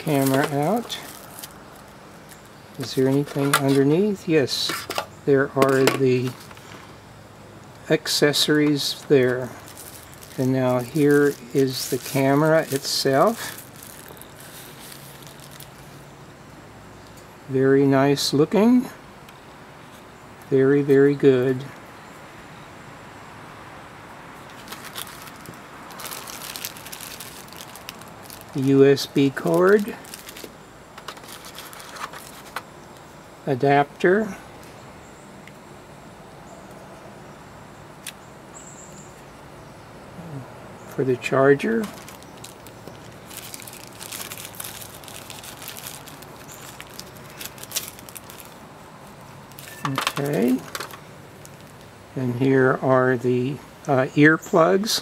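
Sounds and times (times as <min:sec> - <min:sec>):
plastic bag crinkling: 0:00.0 - 0:03.9, 0:08.7 - 0:15.9, 0:24.5 - 0:32.6, 0:41.7 - 0:51.9.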